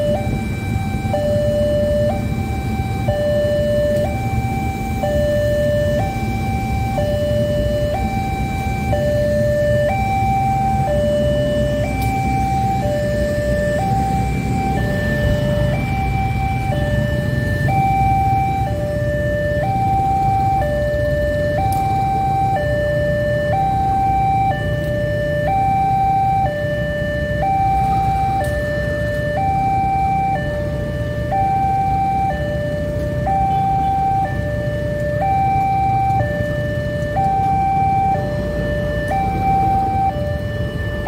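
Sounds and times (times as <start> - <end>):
train rumbling: 0.0 - 22.6
level crossing two-tone alarm: 0.0 - 41.0
road traffic: 0.0 - 41.0.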